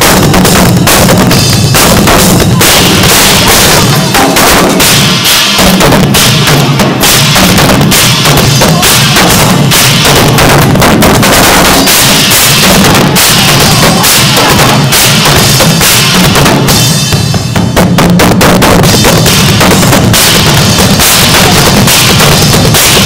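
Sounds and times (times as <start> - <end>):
drum kit solo: 0.0 - 23.0.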